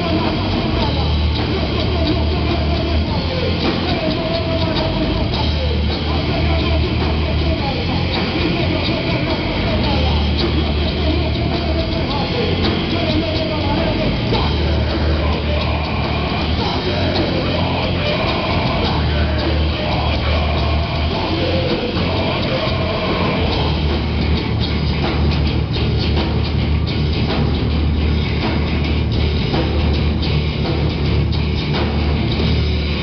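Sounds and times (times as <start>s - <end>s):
person singing: 0.0s - 24.2s
heavy metal band playing: 0.0s - 33.0s.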